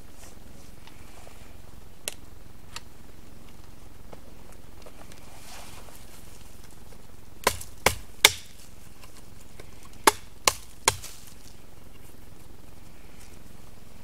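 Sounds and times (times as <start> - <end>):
axe chopping into wood: 7.4 - 8.6, 10.0 - 11.3.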